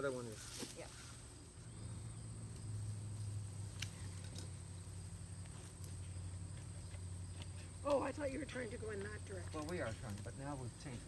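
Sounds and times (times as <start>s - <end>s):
steady low hum: 0.4s - 11.0s.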